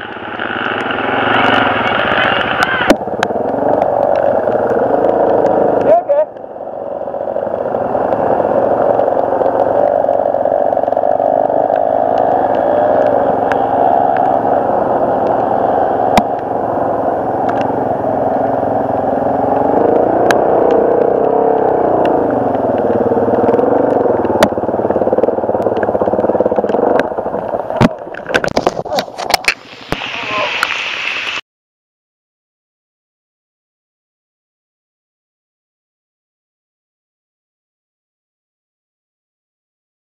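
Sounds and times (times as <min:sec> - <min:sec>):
dirt bike engine revving: 0:00.0 - 0:28.0
sharp clicks: 0:17.4 - 0:17.7, 0:19.5 - 0:30.0.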